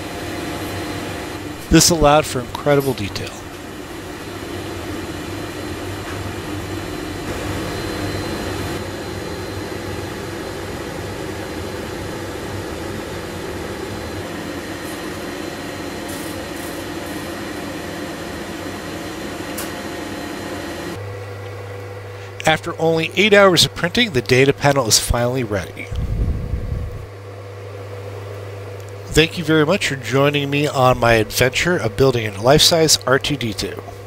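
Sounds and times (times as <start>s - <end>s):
printer fans and motors whirring: 0.0s - 34.0s
low hum: 25.4s - 32.5s.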